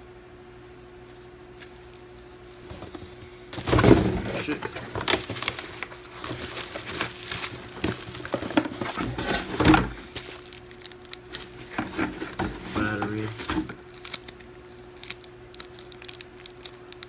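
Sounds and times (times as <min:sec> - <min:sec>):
packaging rustling and crinkling: 0:01.5 - 0:17.0
cardboard bump: 0:03.6 - 0:05.5.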